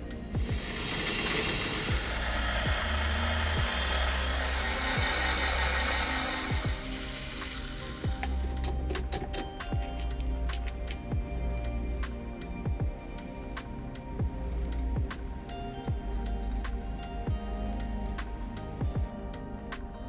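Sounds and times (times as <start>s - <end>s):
drill cutting through metal: 0.0s - 10.0s
background music: 0.0s - 20.0s.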